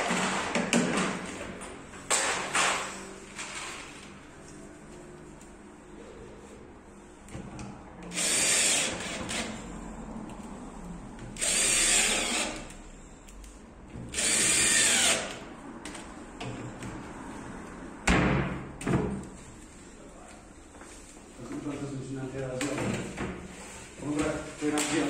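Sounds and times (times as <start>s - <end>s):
cordless drill running: 8.1s - 9.6s, 11.4s - 12.7s, 14.1s - 15.4s.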